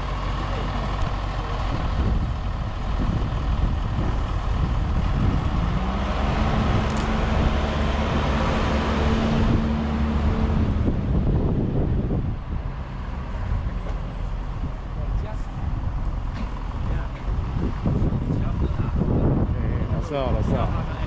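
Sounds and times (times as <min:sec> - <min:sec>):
diesel engine running under load: 0:00.0 - 0:21.0.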